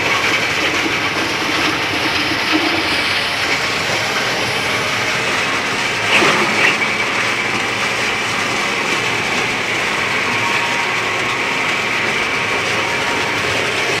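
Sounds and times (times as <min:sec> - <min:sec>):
stone mill running: 0:00.0 - 0:14.0
short squeak: 0:06.0 - 0:07.3.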